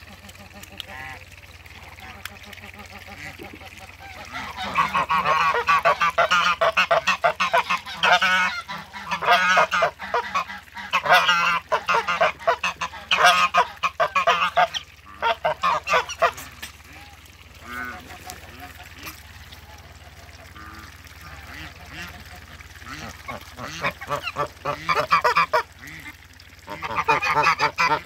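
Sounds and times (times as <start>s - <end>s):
geese honking: 2.0s - 28.0s.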